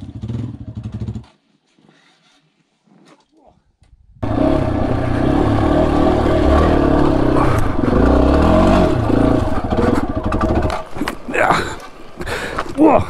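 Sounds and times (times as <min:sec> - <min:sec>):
motorcycle engine revving: 0:04.2 - 0:12.0.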